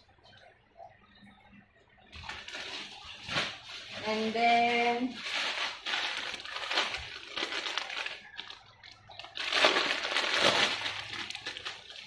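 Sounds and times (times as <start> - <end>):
plastic packaging crinkling: 2.2 - 12.0.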